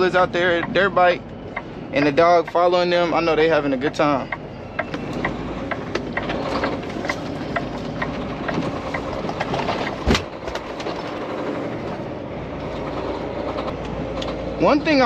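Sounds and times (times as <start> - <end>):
truck engine pulling away: 0.0 - 15.0.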